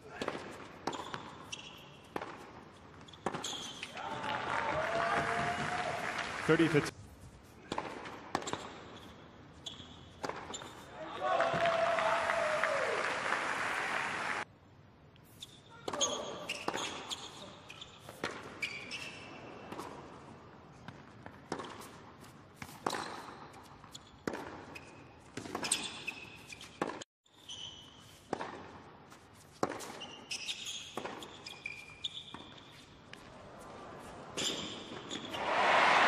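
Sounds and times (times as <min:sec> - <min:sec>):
racket hitting tennis ball: 0:00.1 - 0:03.9, 0:07.6 - 0:08.9, 0:10.2 - 0:10.6, 0:20.8 - 0:27.0, 0:28.3 - 0:30.1
sneakers squeaking on court: 0:00.1 - 0:04.0, 0:07.7 - 0:10.9, 0:15.3 - 0:20.0, 0:20.9 - 0:33.4, 0:34.4 - 0:35.4
tennis ball bouncing: 0:00.2 - 0:03.9, 0:07.7 - 0:09.1, 0:10.2 - 0:10.8, 0:20.8 - 0:27.0, 0:28.3 - 0:30.1.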